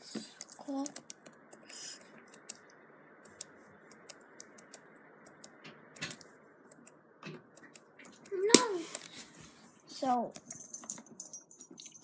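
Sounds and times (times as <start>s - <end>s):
fingers tapping a tablet: 0.2s - 2.7s, 3.3s - 8.6s.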